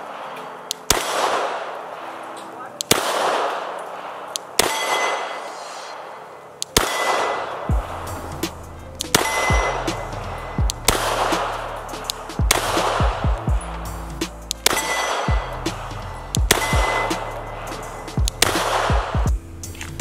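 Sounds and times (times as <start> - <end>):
pistol shots: 0.0 - 13.5, 14.2 - 19.3
steel target ringing: 2.9 - 6.1, 6.8 - 19.2
low electronic music beat: 6.6 - 20.0.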